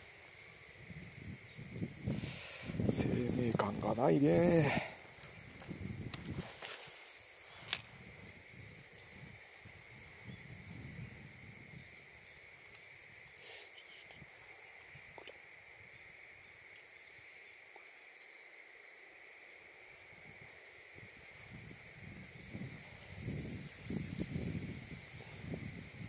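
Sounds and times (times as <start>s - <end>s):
rustling and handling noise: 6.2s - 8.0s.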